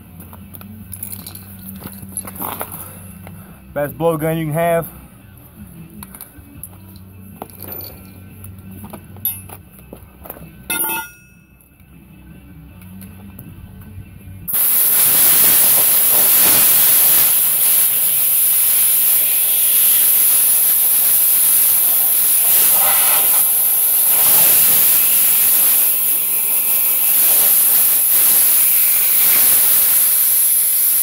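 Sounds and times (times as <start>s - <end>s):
compressed air blow gun hissing: 14.5s - 31.0s.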